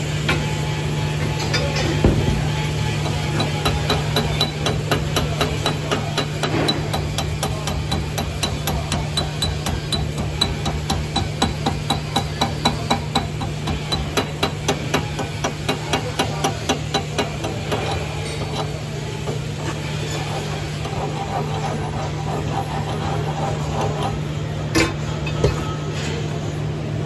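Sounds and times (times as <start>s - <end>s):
chipping hammer tapping steel: 3.0s - 18.7s.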